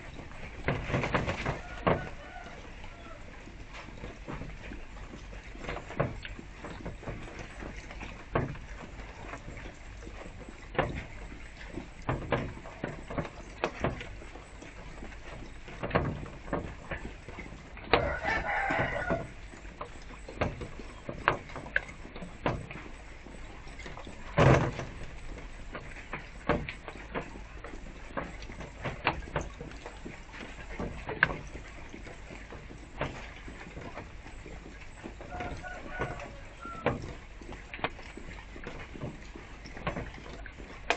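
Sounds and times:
fountain splashing: 0.0s - 3.7s, 16.9s - 22.0s, 35.3s - 36.8s
rooster crowing: 1.6s - 3.3s, 18.0s - 19.4s, 35.3s - 37.0s.

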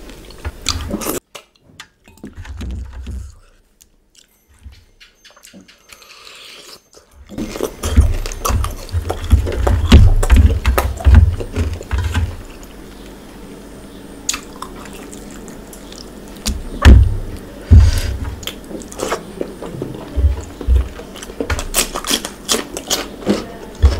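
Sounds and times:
wet chewing and sucking: 5.9s - 12.8s, 14.3s - 16.6s, 17.9s - 23.9s
low thumps: 16.5s - 18.4s, 20.1s - 21.8s.

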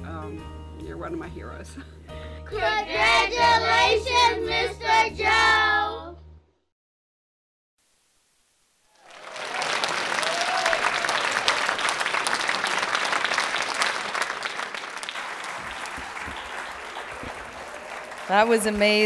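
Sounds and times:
audience applauding: 8.9s - 19.0s.

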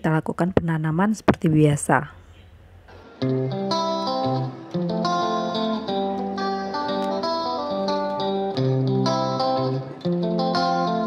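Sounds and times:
plucked guitar melody: 2.9s - 11.0s.

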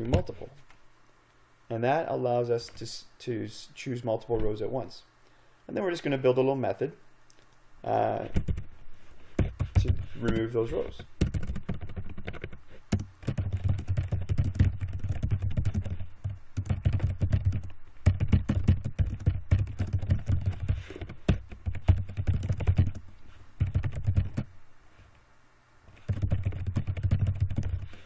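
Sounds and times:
typing on computer keyboard: 8.4s - 8.7s, 11.2s - 23.0s, 23.6s - 24.5s, 26.0s - 28.0s.

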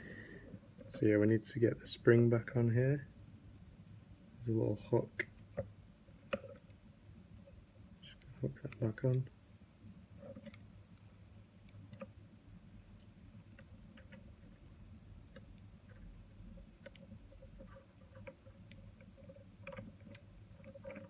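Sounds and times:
low steady hum: 0.0s - 21.0s
small plastic clicks and ticks: 8.0s - 9.3s, 10.2s - 12.2s, 15.2s - 21.0s.

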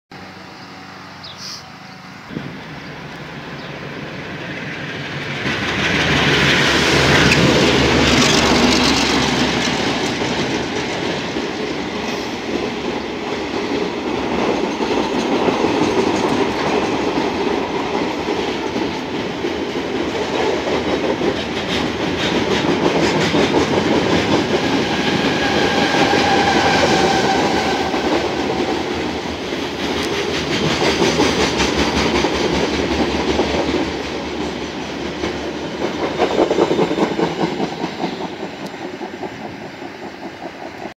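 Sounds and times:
train wheels clickety-clack: 3.1s - 40.9s
high squeal: 25.0s - 28.9s.

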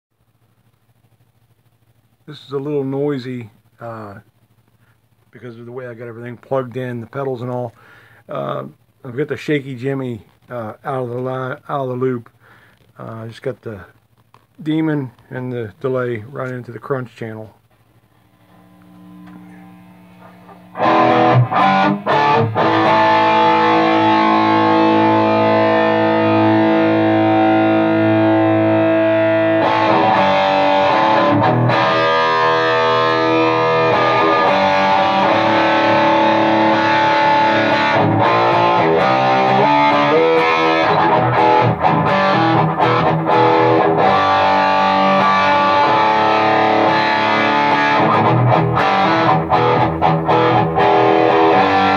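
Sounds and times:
low amp hum: 0.1s - 51.9s
distorted electric guitar: 17.6s - 51.9s.

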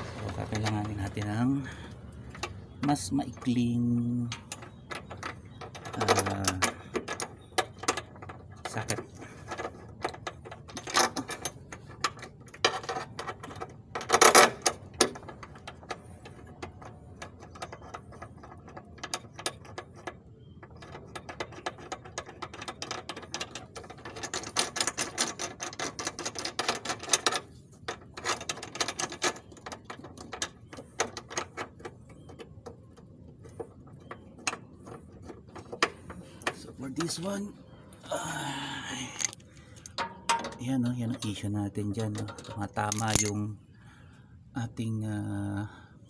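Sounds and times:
metal clatter: 42.1s - 43.4s.

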